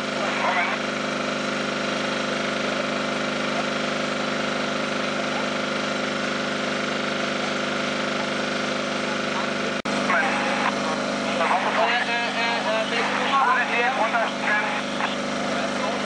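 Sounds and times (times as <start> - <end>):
pump engine running: 0.0 - 16.0.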